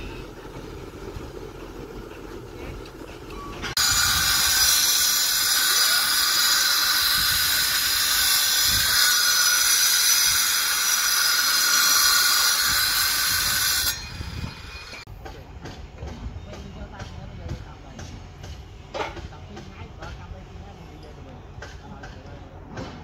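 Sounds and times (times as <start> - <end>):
power cutter grinding rock: 3.8 - 15.0.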